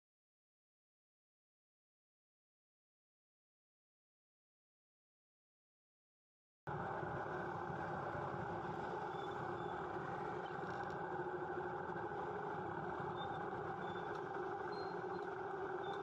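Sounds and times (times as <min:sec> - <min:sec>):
car engines idling in traffic: 0:06.7 - 0:16.0.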